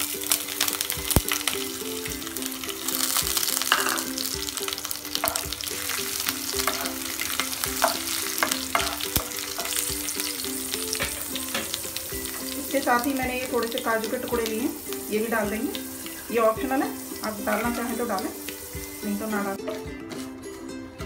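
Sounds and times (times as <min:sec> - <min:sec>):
crackles and pops of oil: 0:00.0 - 0:16.2
food frying in hot oil: 0:00.0 - 0:19.9
wooden spatula stirring: 0:02.1 - 0:20.4.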